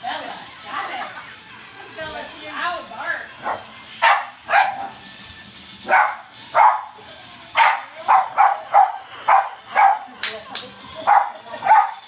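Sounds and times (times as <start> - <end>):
dogs barking: 3.3 - 5.1, 5.8 - 7.0, 7.6 - 10.1, 11.0 - 12.0.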